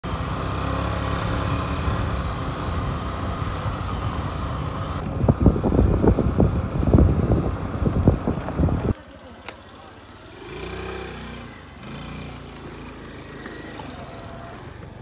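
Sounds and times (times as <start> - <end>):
motor scooter engine hum: 0.0 - 15.0
tyre and wind noise: 1.6 - 9.0
wind buffeting on microphone: 2.9 - 9.0.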